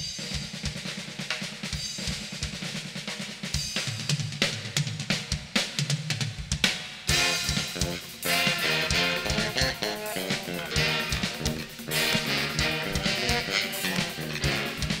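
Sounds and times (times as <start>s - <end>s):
snare and tom strokes: 0.0s - 15.0s
cymbals and hi-hat ringing: 7.1s - 15.0s.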